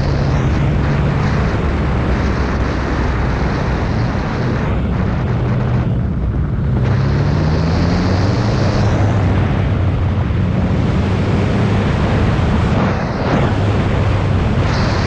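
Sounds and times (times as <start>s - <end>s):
motorcycle engine running: 0.0s - 15.0s
wind noise on microphone: 0.0s - 15.0s.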